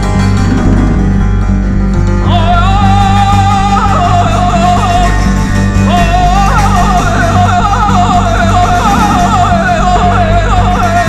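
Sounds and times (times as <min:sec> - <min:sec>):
piano notes: 0:00.0 - 0:03.4
double bass notes: 0:00.0 - 0:11.0
man singing with wavering trills: 0:02.1 - 0:11.0.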